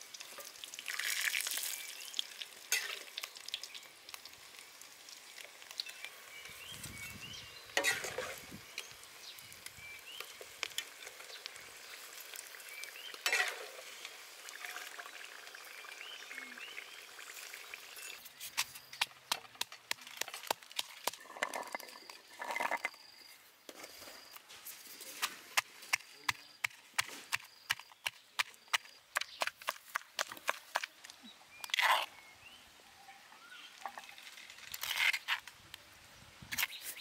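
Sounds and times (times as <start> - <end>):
hot oil sizzling: 0.0 - 22.9.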